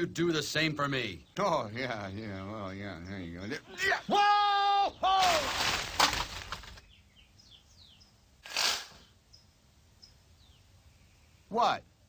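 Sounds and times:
cartoon crash through bushes: 5.0 - 6.8.

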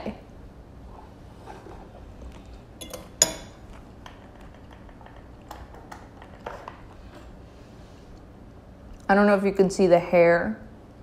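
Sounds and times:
fork clinking in ceramic bowl: 2.8 - 3.6.

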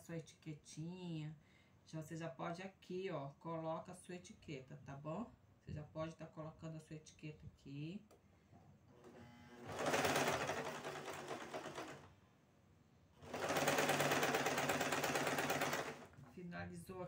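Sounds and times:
electric sewing machine stitching: 8.9 - 12.1, 13.2 - 16.1.

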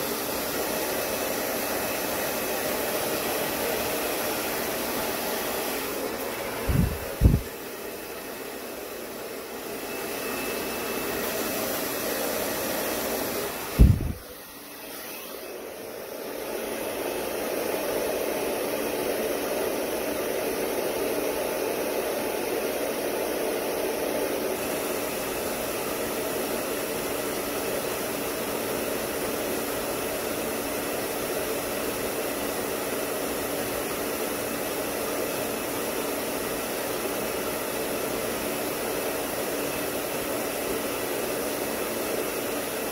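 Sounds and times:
hair dryer blowing: 0.0 - 42.9
sharp thump: 13.8 - 14.2.

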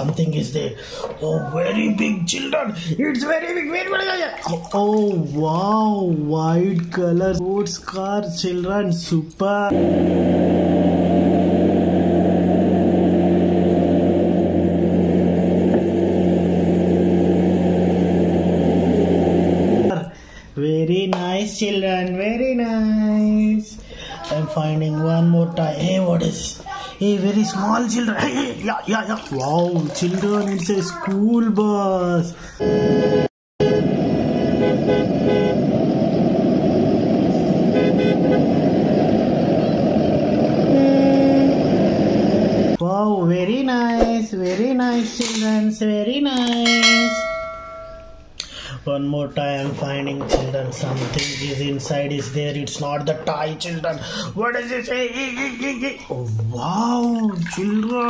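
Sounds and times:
buses driving on wet street: 9.7 - 19.9, 33.6 - 42.8
car engine idling: 9.7 - 19.9
bus horn toots: 32.6 - 34.0, 34.6 - 35.7, 37.6 - 38.6, 40.6 - 41.9.

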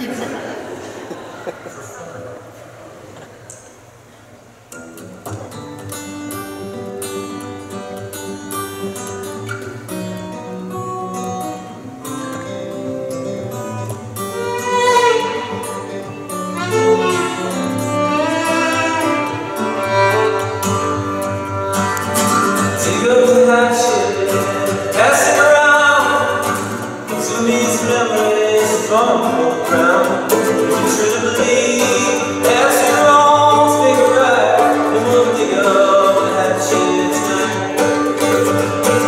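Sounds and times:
strummed acoustic guitar: 3.1 - 39.0
fiddle playing: 14.2 - 22.8.

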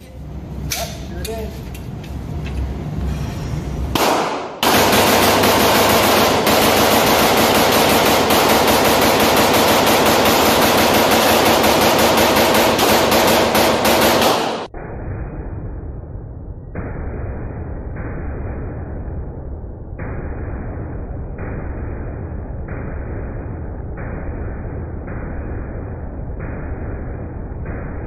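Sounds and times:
rifle firing rapid shots: 4.0 - 14.7.

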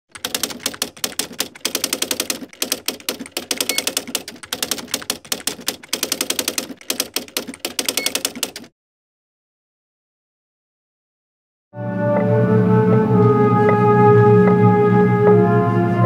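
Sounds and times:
typewriter bell ding: 0.1 - 8.7
typewriter keys clacking: 0.1 - 8.7.

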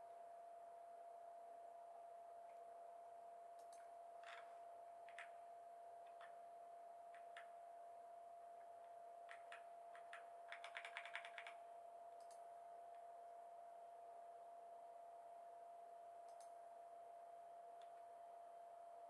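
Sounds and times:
faint steady whine: 0.0 - 19.0
computer keyboard keystrokes: 5.0 - 5.3, 9.2 - 11.6.

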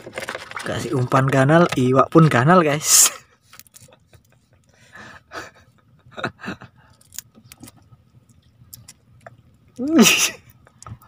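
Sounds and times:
clicks and rustles of handling: 0.0 - 2.5, 3.4 - 4.8, 6.9 - 9.8
person chuckling softly: 3.8 - 7.0, 9.8 - 10.5.

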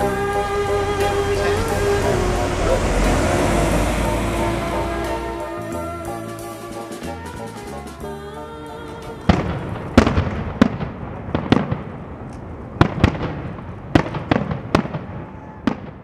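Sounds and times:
fireworks bangs with echo: 9.2 - 16.0.

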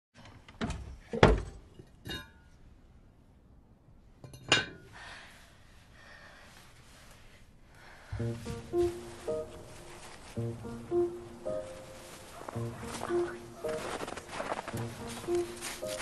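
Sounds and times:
music: 8.1 - 16.0.

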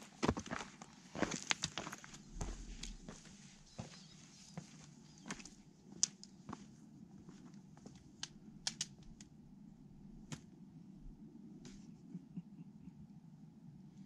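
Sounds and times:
boots and poles on rocky trail: 0.0 - 4.1
low steady hum: 1.8 - 14.0.

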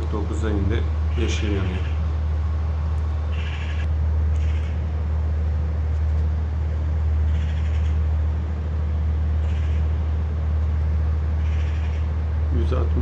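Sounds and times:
generator droning: 0.0 - 13.0.

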